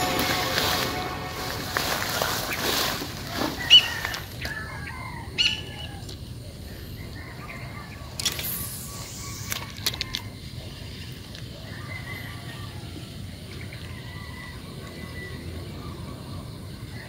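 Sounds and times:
footsteps swishing through grass: 0.0 - 4.2.

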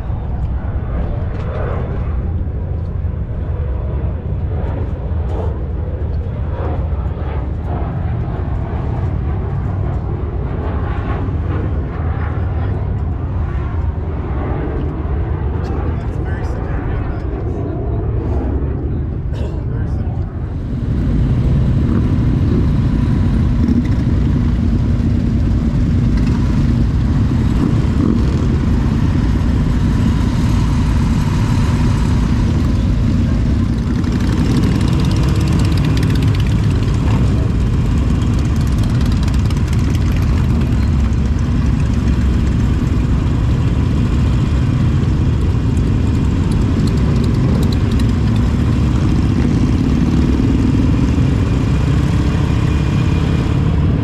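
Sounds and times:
motorcycle engines rumbling: 0.0 - 54.0.

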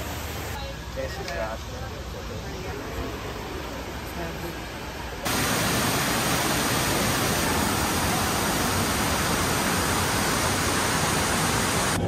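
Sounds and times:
waterfall rushing: 5.3 - 12.0.

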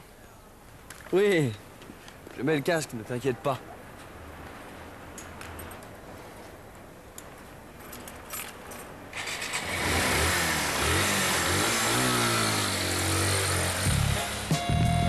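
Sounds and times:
small motorcycle engine revving: 9.2 - 14.5.

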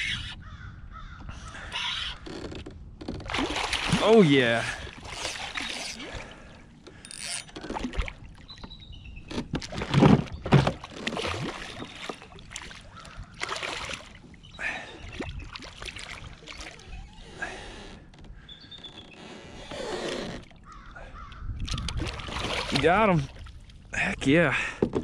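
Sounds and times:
fish thrashing and splashing: 3.1 - 8.6, 9.5 - 14.2, 15.0 - 16.9, 21.6 - 23.7.

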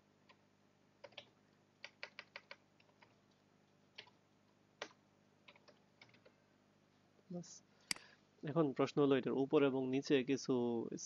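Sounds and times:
typing on a keyboard: 1.0 - 4.2, 4.8 - 6.3.

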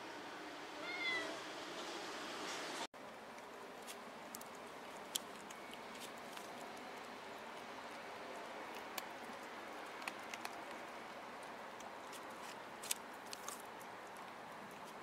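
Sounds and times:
cat chewing with crunches: 3.4 - 15.0.

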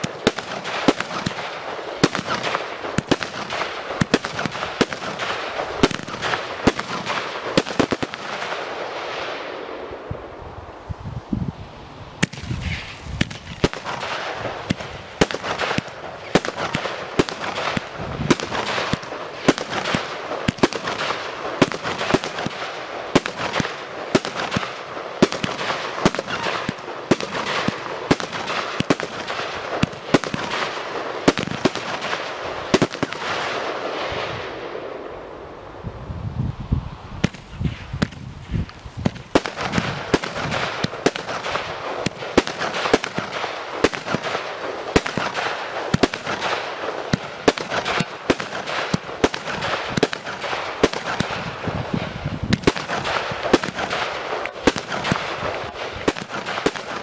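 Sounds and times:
hiss of falling firework stars: 0.0 - 57.0
firework launch thumps and bursts: 12.2 - 30.5, 37.2 - 57.0.

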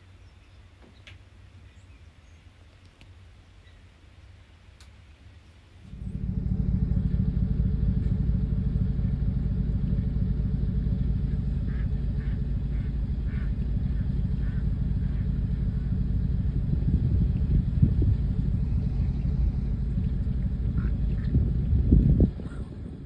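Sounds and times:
steady low rumble: 5.7 - 23.0
ducks quacking: 11.2 - 15.9, 18.9 - 21.5.

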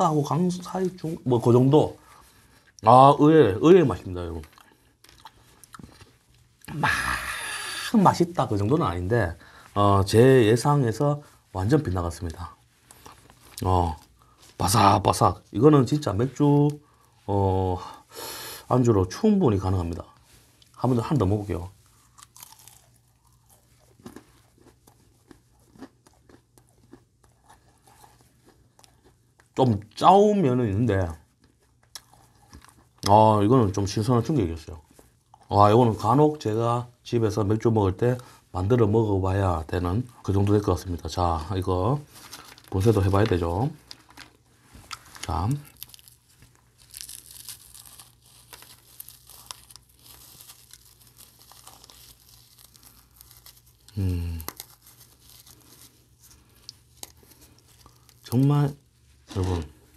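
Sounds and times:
soft crumbling with tiny crackles: 0.0 - 6.7, 8.0 - 17.3, 18.7 - 36.5, 39.3 - 59.9
person chewing crunchy food: 4.3 - 8.0, 21.6 - 30.0, 31.2 - 33.2, 34.8 - 35.7, 42.0 - 59.9.

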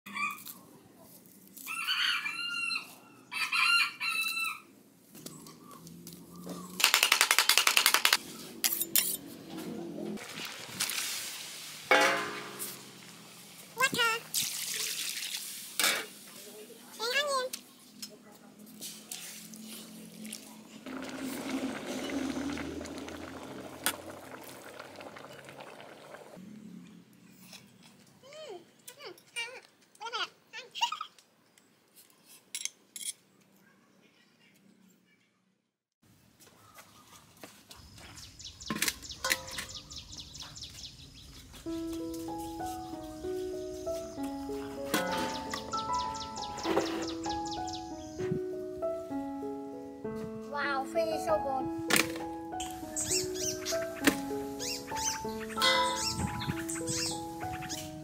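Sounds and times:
rooster crowing: 1.6 - 4.7
broth bubbling at a boil: 20.2 - 26.4.

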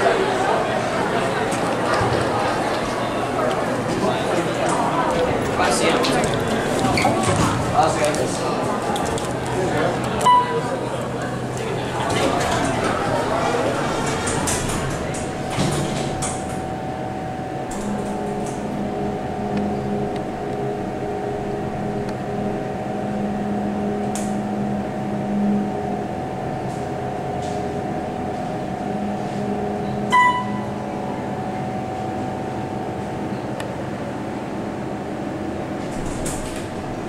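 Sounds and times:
elevator hum: 0.0 - 37.0
electronic chime ding: 10.3 - 10.6, 29.8 - 30.8.

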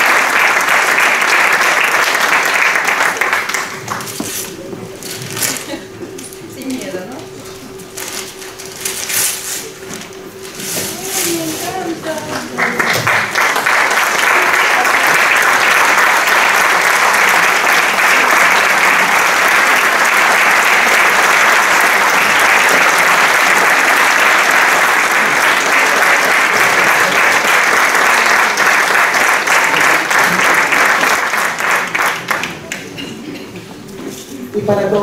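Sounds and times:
crowd applause: 0.0 - 6.0, 12.0 - 33.0.

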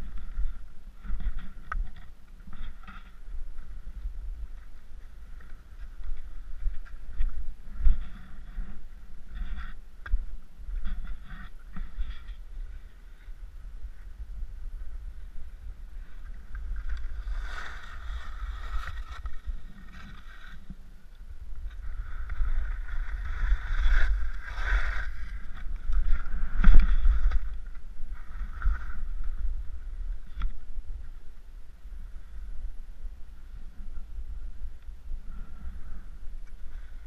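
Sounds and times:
wind on microphone: 0.0 - 37.0
skis swishing on snow: 17.0 - 20.8, 22.4 - 27.3.

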